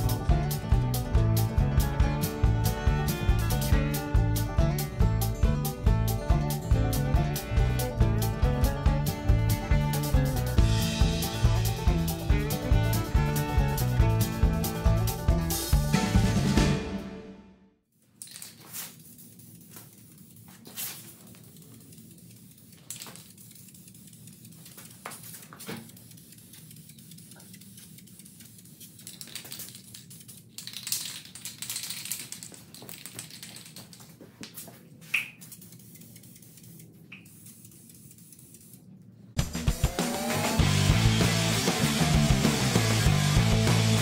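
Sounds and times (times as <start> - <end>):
spray can hissing: 2.2 - 4.0, 6.6 - 15.8, 18.3 - 31.2, 35.0 - 38.9.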